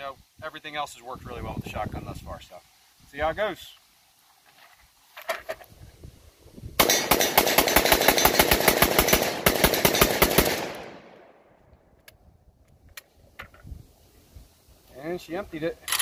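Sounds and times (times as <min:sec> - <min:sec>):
gunshot echo: 0:06.8 - 0:08.4
rapid shotgun fire: 0:06.8 - 0:11.2.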